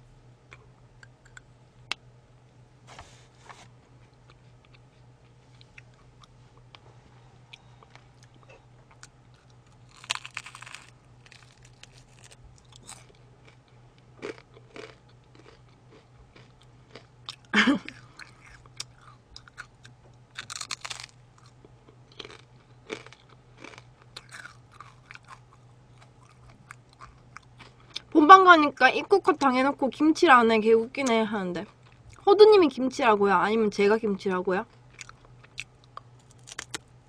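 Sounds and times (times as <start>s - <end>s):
crunching and chewing food: 0.5s - 2.0s, 4.0s - 6.8s, 7.4s - 28.2s, 31.0s - 32.3s, 34.6s - 37.0s.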